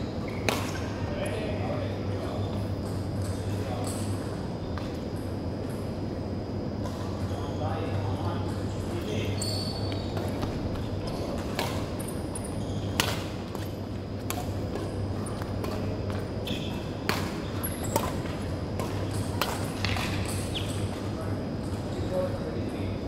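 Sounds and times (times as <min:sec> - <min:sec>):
steady low hum: 0:00.0 - 0:23.0
rackets hitting shuttlecock: 0:00.3 - 0:00.9, 0:10.1 - 0:21.1.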